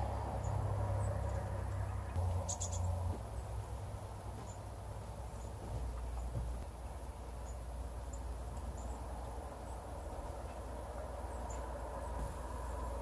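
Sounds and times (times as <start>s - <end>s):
low outdoor rumble: 0.0s - 13.0s
songbird chips: 0.4s - 3.6s.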